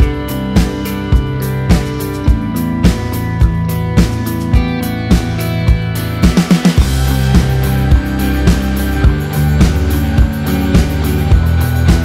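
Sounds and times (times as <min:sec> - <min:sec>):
instrumental background music: 0:00.0 - 0:12.0
steady thumping beat: 0:00.0 - 0:12.0.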